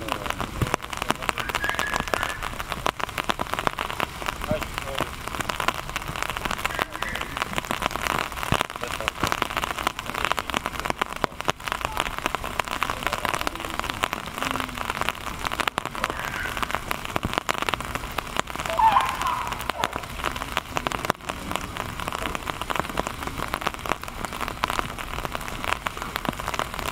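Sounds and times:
rain pattering: 0.0s - 26.9s.

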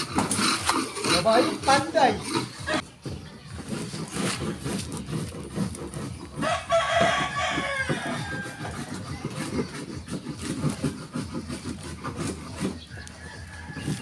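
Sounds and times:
rooster crowing: 6.4s - 9.2s, 13.0s - 14.0s.

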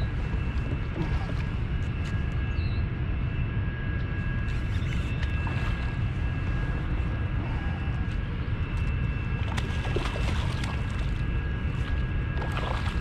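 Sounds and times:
steady low rumble: 0.0s - 13.0s
fish splashing in water: 9.4s - 11.2s, 11.8s - 13.0s.

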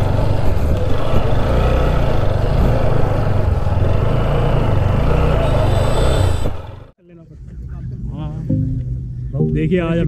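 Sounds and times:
motorcycle engine running: 0.0s - 6.9s.

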